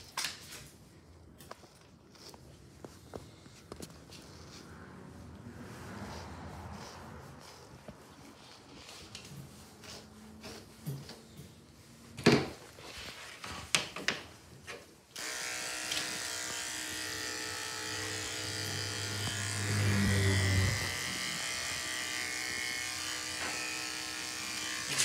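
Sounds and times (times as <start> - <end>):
electric hair clipper buzzing: 15.2 - 25.0.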